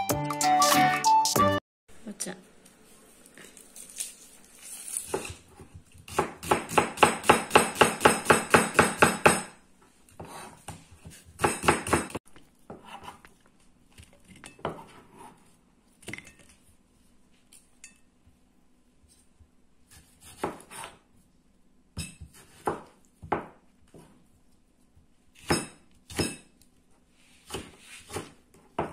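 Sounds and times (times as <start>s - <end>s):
knife chopping on cutting board: 5.1s - 9.6s, 10.2s - 13.2s, 19.9s - 21.0s, 22.0s - 24.2s, 25.4s - 26.5s, 27.4s - 28.9s.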